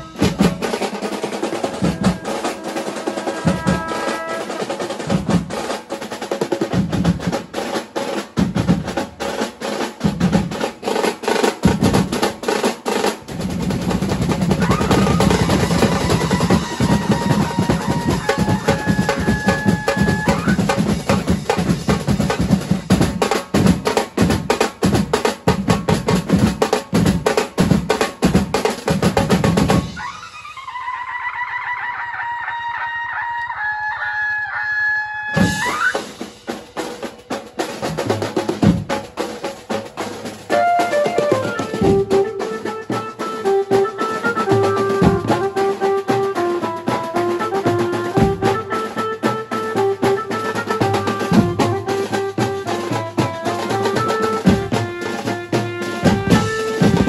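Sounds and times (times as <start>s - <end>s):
snare drums rolling: 0.0s - 31.2s, 35.3s - 57.0s
bass drums: 40.5s - 42.4s, 56.0s - 57.0s.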